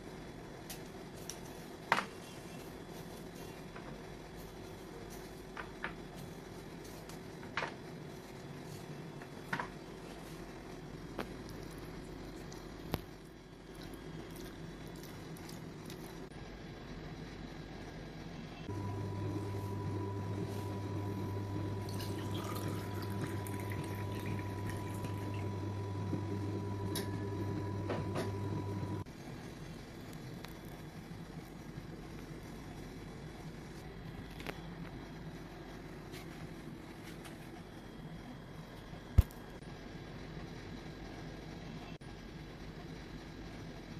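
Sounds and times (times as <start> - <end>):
steady low hum: 0.0 - 43.9
liquid pouring into a glass: 21.8 - 25.5.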